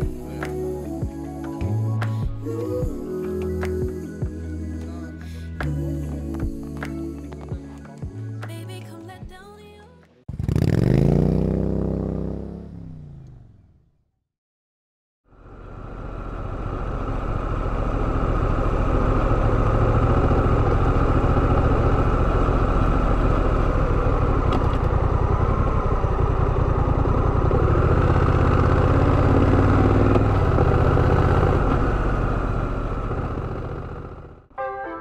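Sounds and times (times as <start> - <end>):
motorcycle engine running steadily: 15.3 - 34.5.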